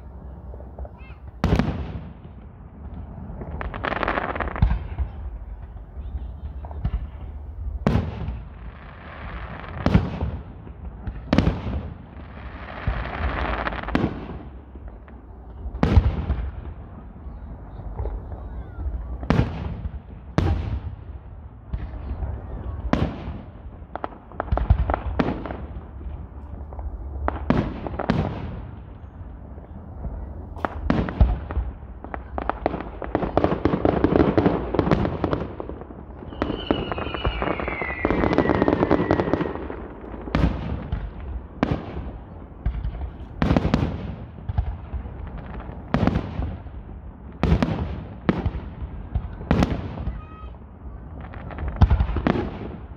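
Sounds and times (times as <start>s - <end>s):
fireworks booming: 0.0s - 52.9s
fireworks crackling: 0.0s - 52.9s
falling firework whistle: 36.2s - 39.8s.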